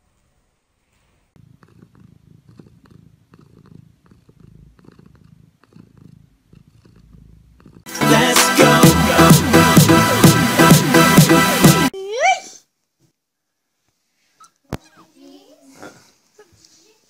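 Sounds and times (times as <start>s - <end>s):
cat purring: 1.0s - 7.9s
loud music: 7.9s - 11.9s.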